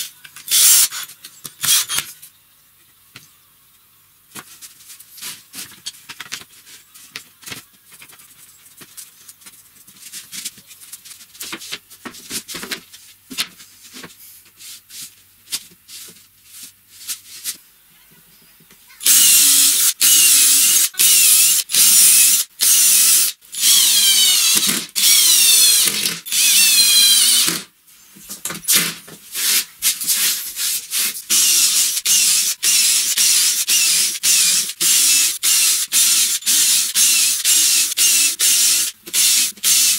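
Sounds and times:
cordless drill driving screws: 0.5 - 1.0, 1.6 - 2.0, 19.0 - 27.6, 31.3 - 39.9.

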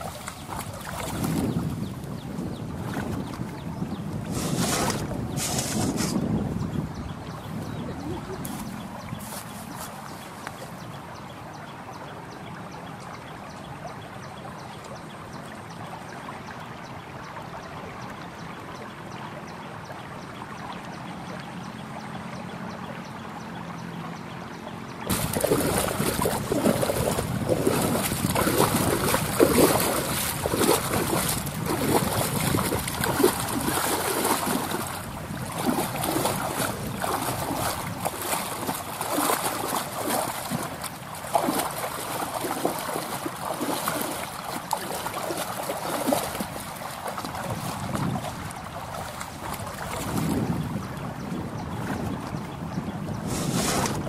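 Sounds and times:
foot sloshing in water: 0.0 - 6.4, 7.3 - 10.9, 25.1 - 51.0
shallow river flowing: 0.0 - 54.0.

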